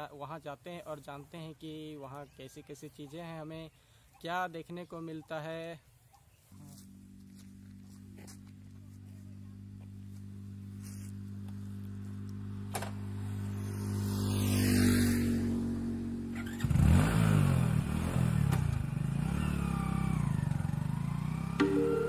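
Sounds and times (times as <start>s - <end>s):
motorcycle revving and riding off: 10.4s - 22.0s
vehicle passing: 12.1s - 16.6s.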